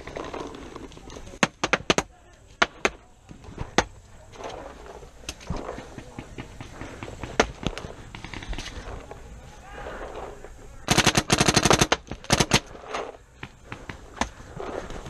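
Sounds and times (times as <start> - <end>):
paintball marker firing: 1.4 - 3.0, 5.2 - 8.9.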